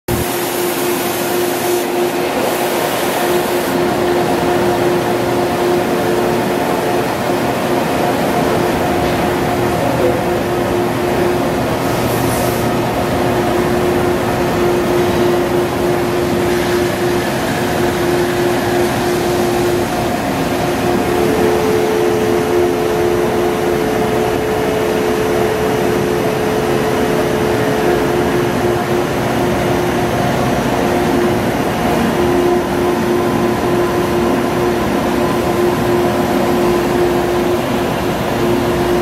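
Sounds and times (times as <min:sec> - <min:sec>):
machine hiss: 0:00.1 - 0:04.2
constant machine hum: 0:00.1 - 0:39.0.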